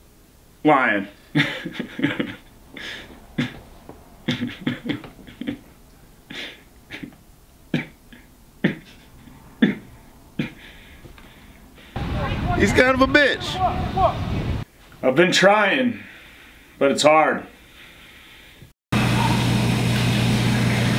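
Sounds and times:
man's stifled laughter: 1.3s - 10.7s.

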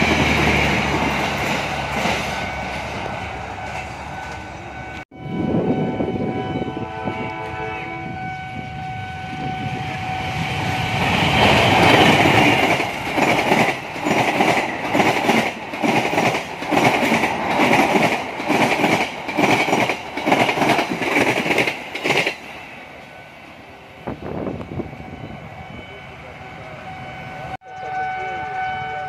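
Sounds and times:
diesel locomotive passing: 0.0s - 29.0s
train wheels clattering on rail joints: 11.1s - 22.5s.

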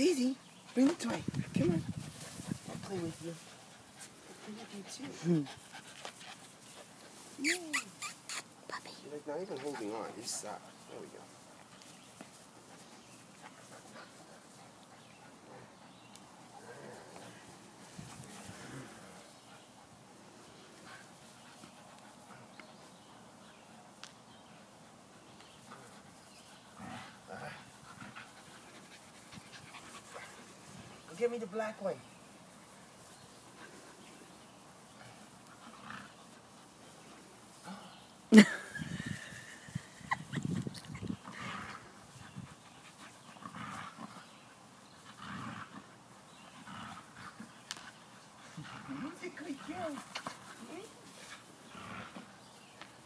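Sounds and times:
faint outdoor hiss: 0.0s - 53.0s.

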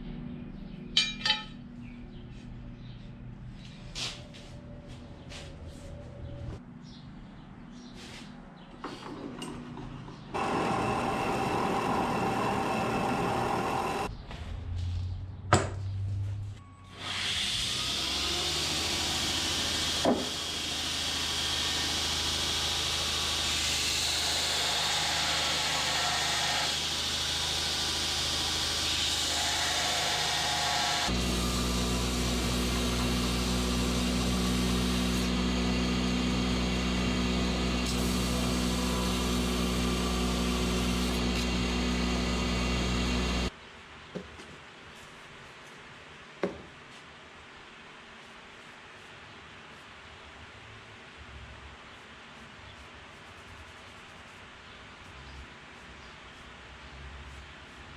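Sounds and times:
low motor hum: 9.9s - 15.3s, 31.1s - 43.5s
belt grinder grinding steel: 10.4s - 14.1s, 17.0s - 43.5s
metal-cutting bandsaw running: 10.4s - 14.1s, 17.0s - 43.5s.

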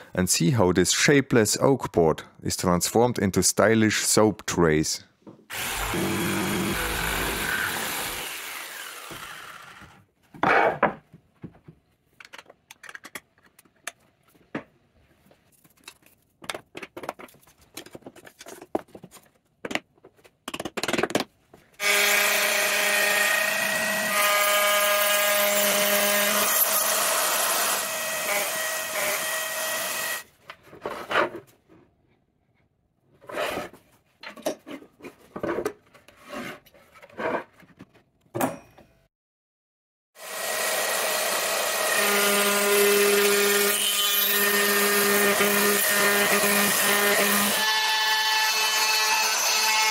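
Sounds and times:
jigsaw cutting wood: 5.5s - 10.0s, 21.8s - 30.2s, 40.2s - 49.9s
power tool whining: 5.5s - 10.0s.

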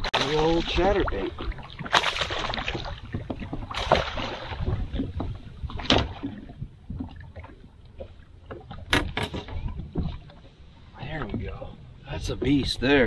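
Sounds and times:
fish thrashing and splashing: 0.0s - 7.5s
knocks against a boat: 1.9s - 7.1s, 8.5s - 10.3s.

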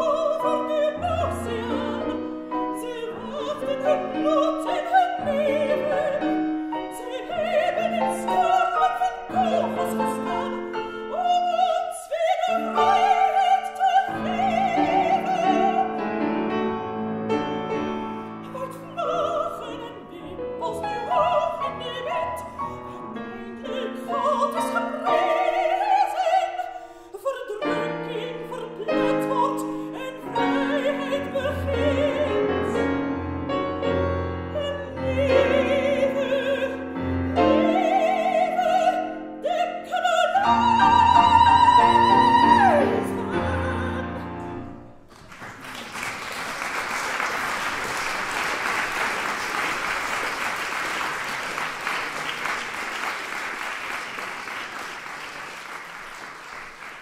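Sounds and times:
soprano singing: 0.0s - 45.1s
piano accompaniment: 0.0s - 57.0s
audience applause: 45.1s - 57.0s.

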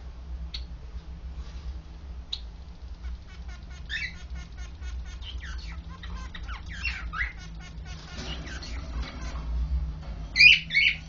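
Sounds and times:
steady low hum: 0.0s - 11.0s
finch singing clicking notes: 2.3s - 9.4s.

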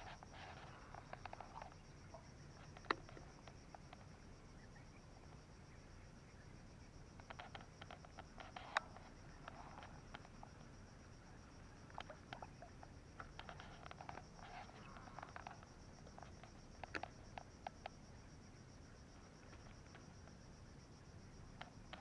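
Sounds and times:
soft clicks and ticks: 0.0s - 4.2s, 7.2s - 10.8s, 11.9s - 18.0s, 21.6s - 22.0s.

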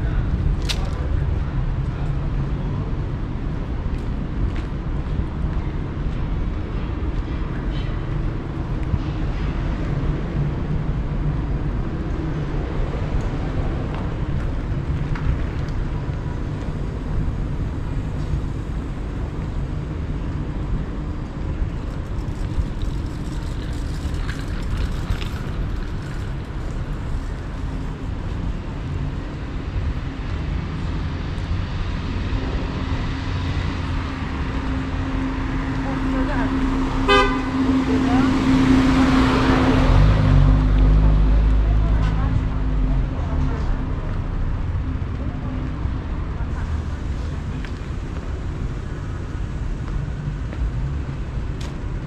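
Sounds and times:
rumble of passing vehicles: 0.0s - 52.0s.

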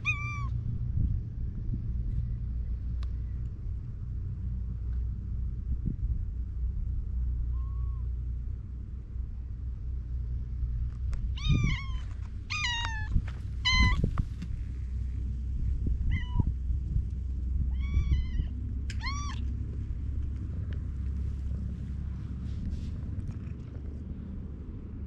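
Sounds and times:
cat meowing: 0.0s - 0.5s, 11.4s - 14.1s, 16.0s - 16.5s, 17.7s - 19.4s
steady low rumble: 0.0s - 25.0s.

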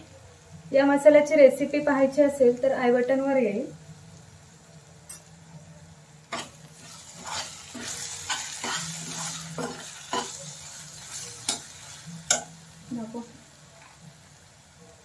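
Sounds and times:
soft sizzle of frying: 0.0s - 15.0s
spatula scraping steel pan: 7.1s - 10.4s.

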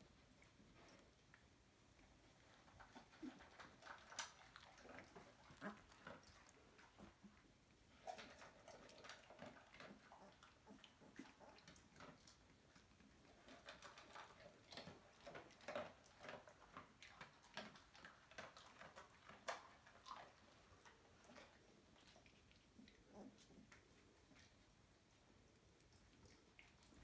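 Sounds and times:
dog lapping at steel bowl: 2.5s - 7.3s, 8.0s - 22.5s.

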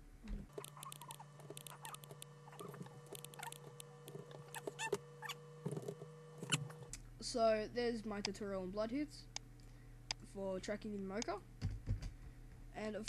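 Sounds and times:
short squeaks: 0.3s - 6.9s
computer mouse and keyboard clicks: 0.5s - 5.0s.

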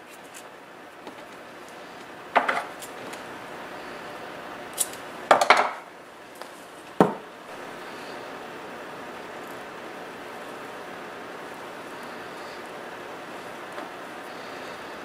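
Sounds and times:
tools knocking on a workbench: 2.3s - 2.7s, 5.3s - 5.8s, 7.0s - 7.2s.

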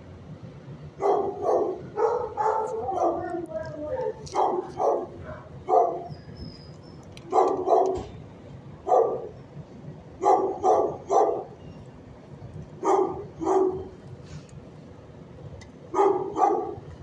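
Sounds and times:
dog barking: 1.0s - 6.1s, 7.3s - 8.1s, 8.8s - 9.3s, 10.2s - 11.6s, 12.8s - 13.9s, 15.9s - 16.8s.

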